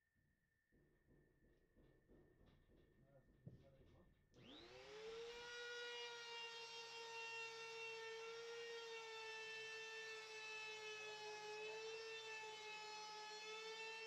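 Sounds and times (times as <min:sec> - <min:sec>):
router motor whine: 0:04.4 - 0:14.0.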